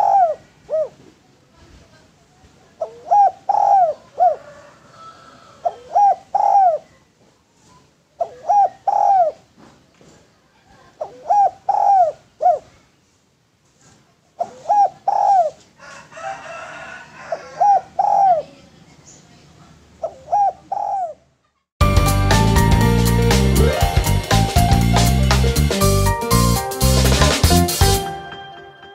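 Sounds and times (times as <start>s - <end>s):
dove cooing: 0.0s - 1.1s, 2.8s - 6.9s, 8.2s - 9.5s, 10.9s - 12.8s, 14.4s - 15.6s, 17.2s - 18.6s, 20.0s - 21.2s
loud outro music: 21.8s - 28.9s.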